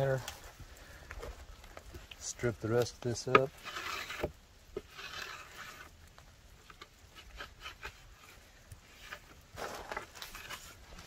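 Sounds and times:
soft rustle of fish handled: 0.0s - 11.0s
knife tapping and scraping wood: 1.8s - 5.9s.

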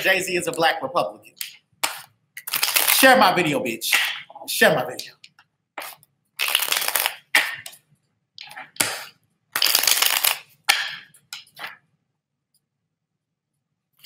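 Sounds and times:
cards being shuffled: 1.8s - 3.0s, 5.8s - 7.7s, 8.5s - 11.8s.

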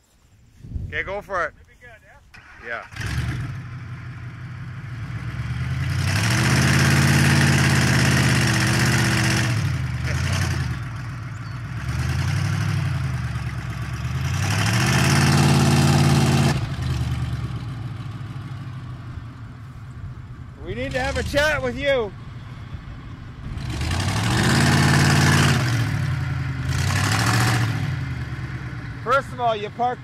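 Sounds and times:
truck engine revving: 2.4s - 19.2s, 20.6s - 30.0s.

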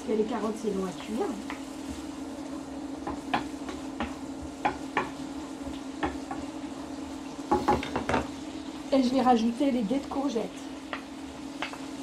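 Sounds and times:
faint sizzle: 0.0s - 12.0s
induction hob hum: 0.0s - 12.0s
wooden spatula stirring in pan: 0.0s - 12.0s
spatula knocking and scraping pan: 3.0s - 6.6s, 7.5s - 8.4s, 10.9s - 11.9s.

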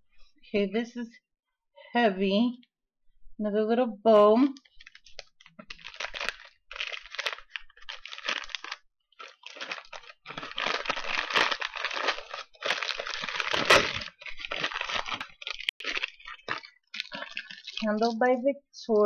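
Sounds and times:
tissue paper rustling and crinkling: 4.7s - 18.2s.

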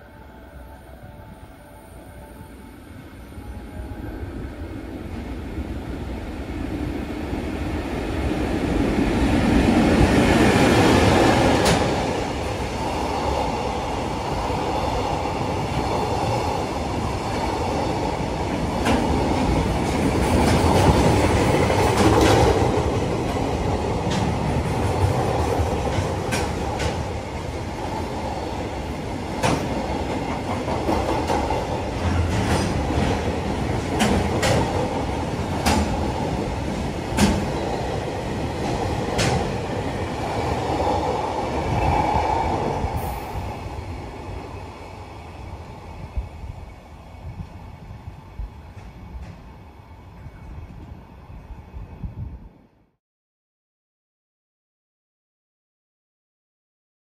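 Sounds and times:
train wheels rumbling on rail: 5.6s - 52.6s
wheels clacking over rail joints: 30.4s - 36.2s.

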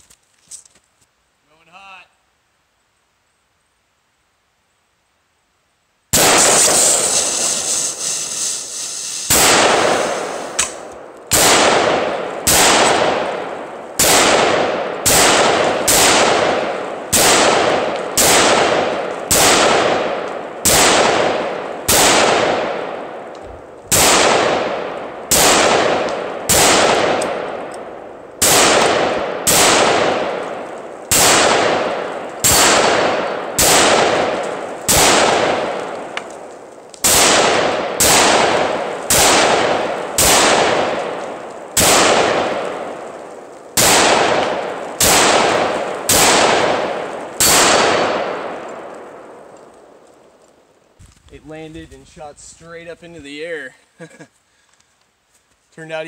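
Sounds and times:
rifle shots echoing: 6.1s - 50.4s
fire extinguisher bursting: 6.2s - 10.9s
gas hissing: 6.4s - 10.8s.

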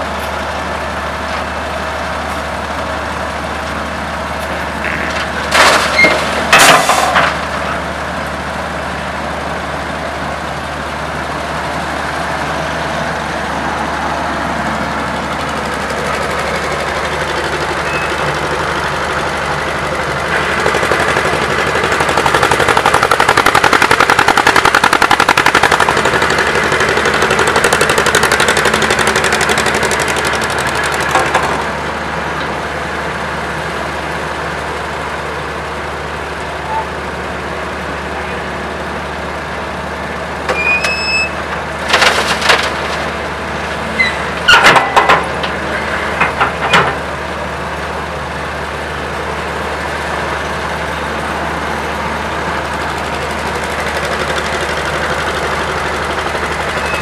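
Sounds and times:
diesel engine rattling: 0.0s - 57.0s
short metal squeal: 17.8s - 18.2s, 40.5s - 41.4s, 44.0s - 44.2s, 56.8s - 57.0s
sharp metallic clanks and knocks: 44.4s - 45.6s.

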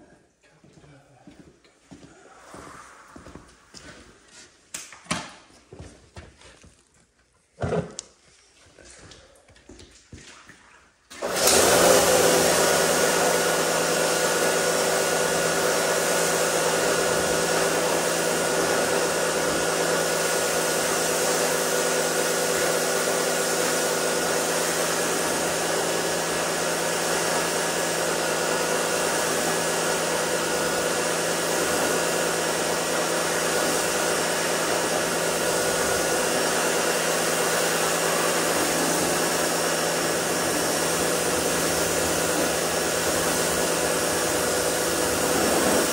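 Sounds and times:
pressure washer hum: 11.1s - 45.9s
water spray hissing: 35.3s - 45.9s.

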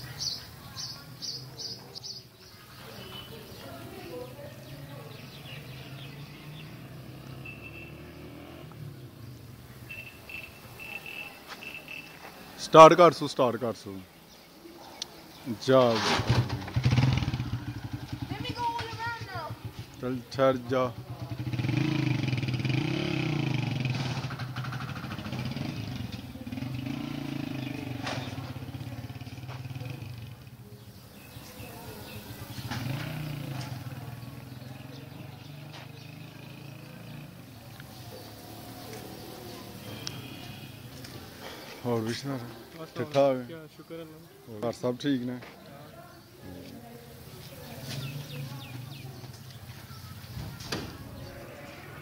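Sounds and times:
distant motorcycle engine running: 3.1s - 10.4s, 16.0s - 41.6s, 47.0s - 51.8s
high chirping: 4.8s - 8.6s, 9.7s - 12.2s.

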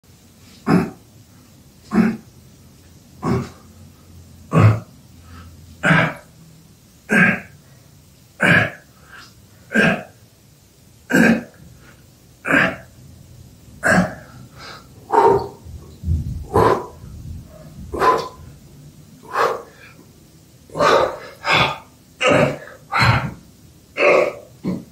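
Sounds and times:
man exhaling forcefully: 16.4s - 18.5s, 19.2s - 20.0s, 20.7s - 23.4s.

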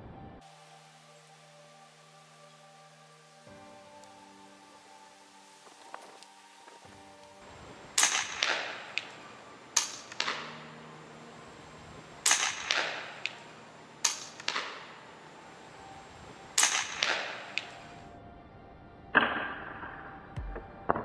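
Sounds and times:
air rifle shots: 8.0s - 9.2s, 9.8s - 10.5s, 12.2s - 14.9s, 16.6s - 17.8s
faint echo crack: 8.0s - 10.6s, 12.2s - 15.0s, 16.6s - 17.9s.

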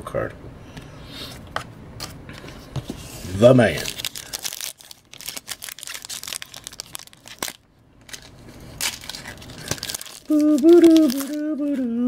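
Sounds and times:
foil wrapper crinkling and tearing: 3.4s - 11.9s
drawn-out voice: 10.3s - 12.0s.

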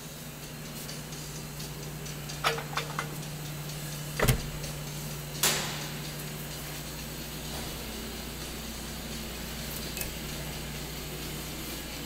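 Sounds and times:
car door shutting thump: 4.2s - 4.7s.

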